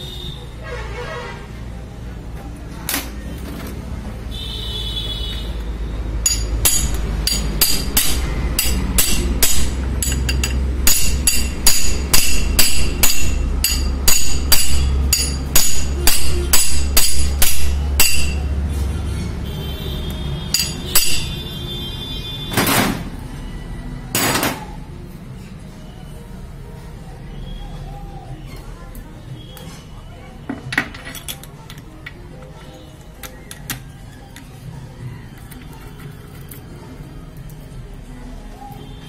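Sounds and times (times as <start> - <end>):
metal tools knocking on metal: 6.2 - 18.5, 20.5 - 21.4, 30.5 - 32.2.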